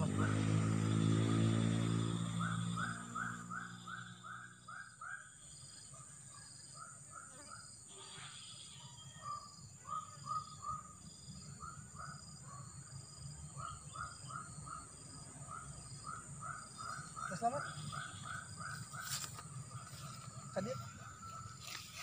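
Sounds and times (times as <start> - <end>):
high-pitched insect buzz: 7.2 - 9.2.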